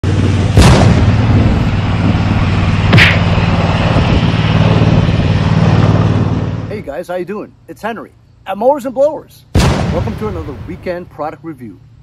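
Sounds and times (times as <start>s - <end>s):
loud bangs: 0.4s - 6.3s, 9.5s - 10.9s.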